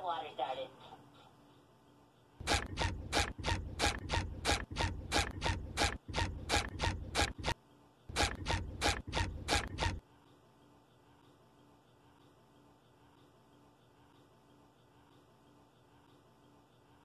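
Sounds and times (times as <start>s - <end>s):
sharp scraping clicks: 2.4s - 10.0s.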